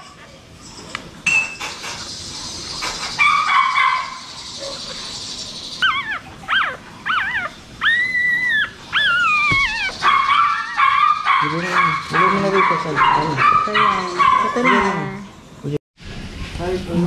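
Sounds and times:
puppy squealing: 5.8 - 15.0.

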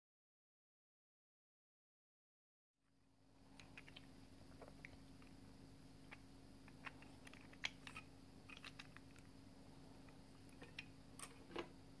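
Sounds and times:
low steady hum: 2.9 - 12.0.

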